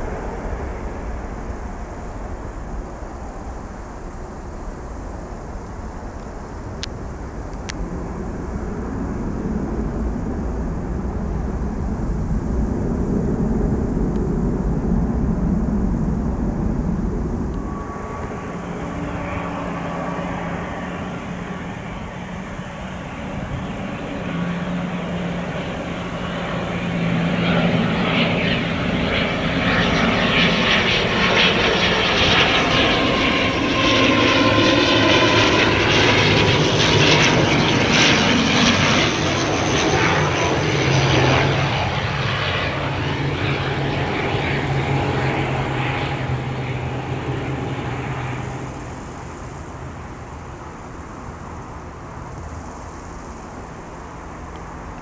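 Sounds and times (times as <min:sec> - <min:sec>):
turboprop aircraft passing: 0:00.0 - 0:55.0.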